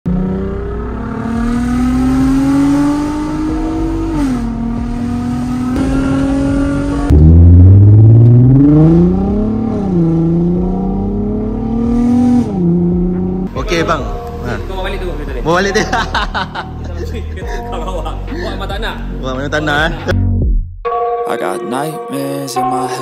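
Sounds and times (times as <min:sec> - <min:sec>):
car engine accelerating: 0:00.1 - 0:13.6.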